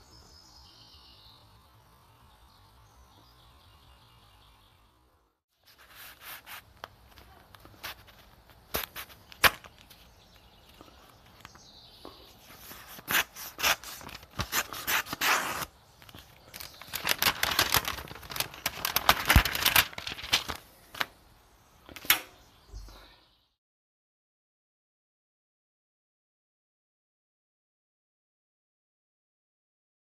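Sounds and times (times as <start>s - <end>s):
paper tearing: 5.7s - 9.8s, 12.6s - 20.6s.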